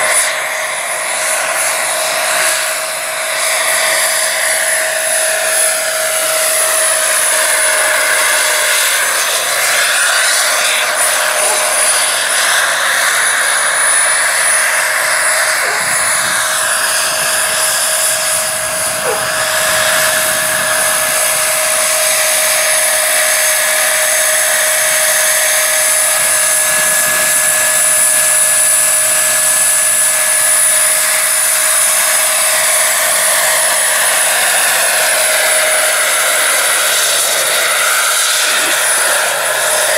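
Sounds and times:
gas turbine whine: 0.0 - 39.9
rotor blades whooshing: 3.2 - 22.0.

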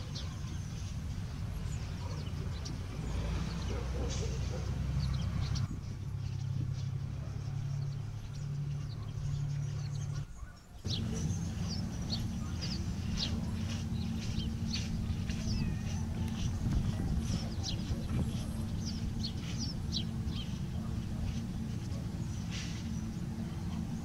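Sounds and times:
small birds chirping: 0.0 - 24.0
steady low rumble: 10.8 - 24.0.

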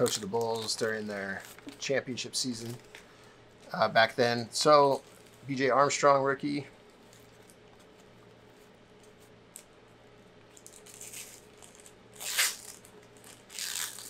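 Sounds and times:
cards rustling: 0.0 - 3.1
faint steady hum: 0.0 - 14.0.

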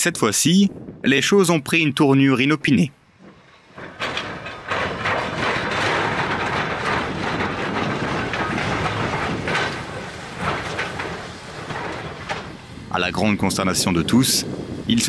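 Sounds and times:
steam locomotive working: 0.2 - 15.0
wheels clattering over rails: 0.8 - 15.0.

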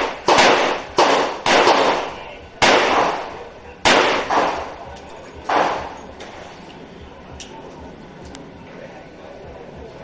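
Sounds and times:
revolver shots with ringing echo: 0.0 - 4.8.

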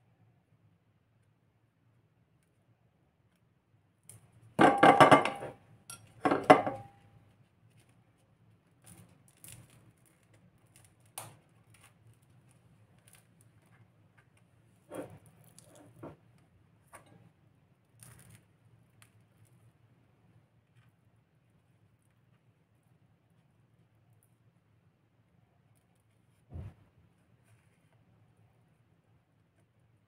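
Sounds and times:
spoon tapping and scraping: 4.6 - 7.0.

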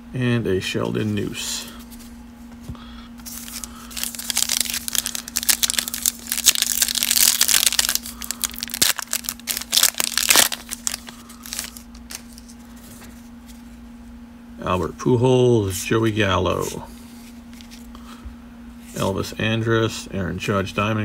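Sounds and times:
foil wrapper tearing and crinkling: 3.2 - 12.5.

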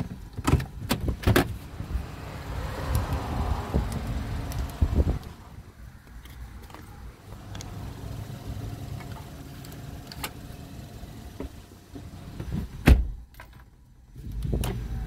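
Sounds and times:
car idling: 1.6 - 12.8.

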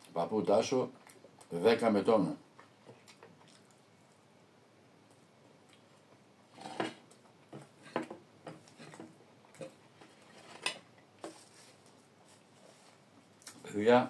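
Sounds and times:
fork scraping ceramic plate: 6.5 - 7.0.

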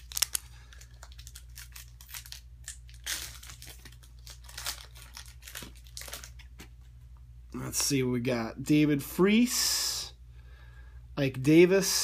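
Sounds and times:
foil wrapper crinkling: 0.0 - 6.8.

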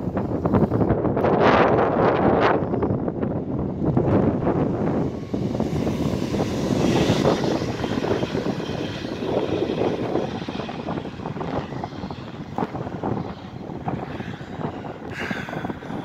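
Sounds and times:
passenger train rumbling past: 3.7 - 16.0.

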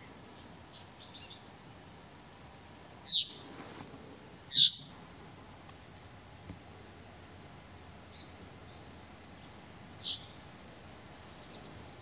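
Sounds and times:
bird calling: 3.0 - 3.5, 4.5 - 4.9, 10.0 - 10.4.

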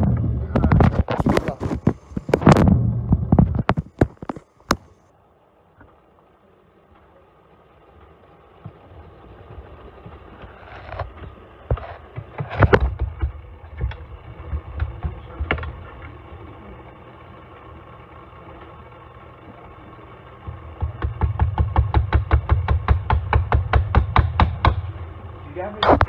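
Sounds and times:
low rumble: 0.0 - 4.0
steady hum: 0.0 - 26.0
phone handling noise: 0.5 - 5.0.

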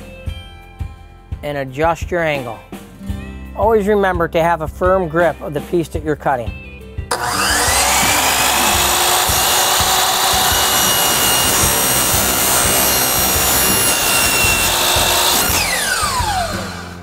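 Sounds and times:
miter saw cutting plastic: 7.1 - 17.0.

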